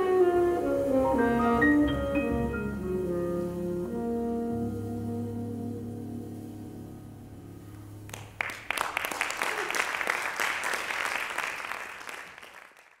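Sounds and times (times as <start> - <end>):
jazz band sustained chord: 0.0 - 8.4
audience applause: 8.1 - 13.0.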